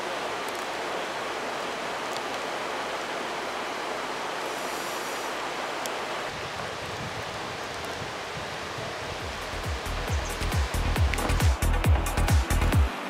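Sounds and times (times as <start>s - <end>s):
whitewater river rushing: 0.0s - 13.0s.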